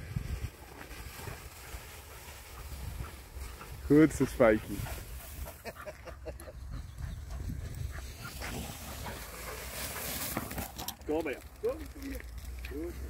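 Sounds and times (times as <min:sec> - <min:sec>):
wheat stalks rustling: 0:00.1 - 0:05.8, 0:08.0 - 0:13.0
dog panting: 0:01.6 - 0:10.1.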